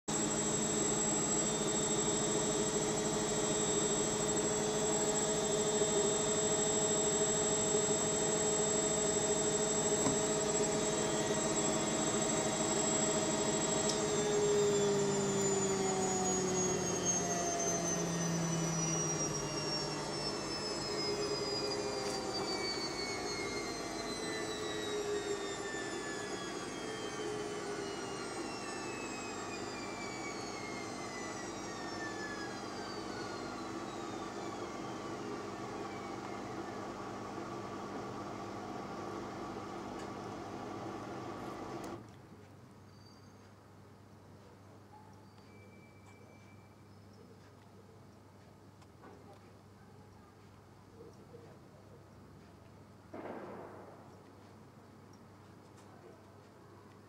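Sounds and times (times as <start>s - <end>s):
machine whining hum: 0.1s - 42.1s.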